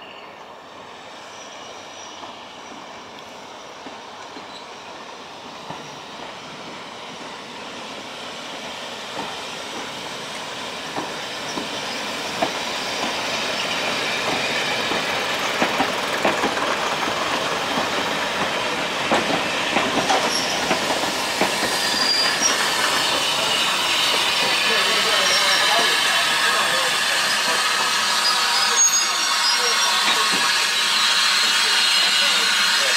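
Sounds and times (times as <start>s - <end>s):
high wheel squeal: 0.0s - 5.2s, 8.9s - 32.9s
train rolling past platform: 0.0s - 32.9s
wheels clicking over rail joints: 14.2s - 23.1s.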